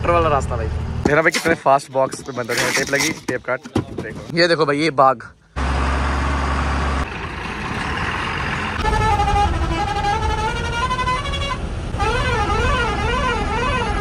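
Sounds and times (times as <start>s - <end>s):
heavy truck driving past: 5.6s - 10.6s.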